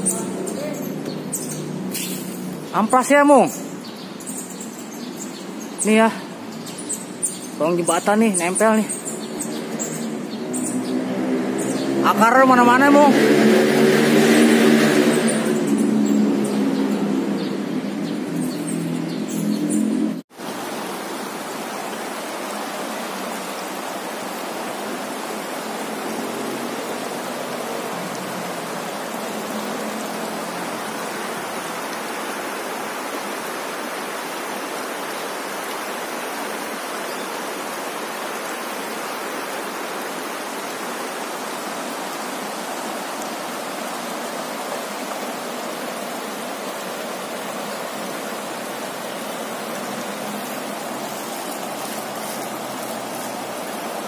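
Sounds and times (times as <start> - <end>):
shallow river flowing over rocks: 20.2 - 54.0.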